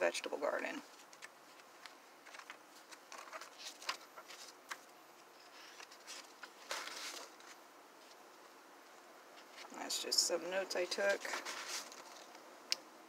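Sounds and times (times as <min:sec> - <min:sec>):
paper pages rustling: 0:00.8 - 0:08.2, 0:10.9 - 0:12.4
page turning: 0:00.9 - 0:08.2, 0:10.9 - 0:12.4.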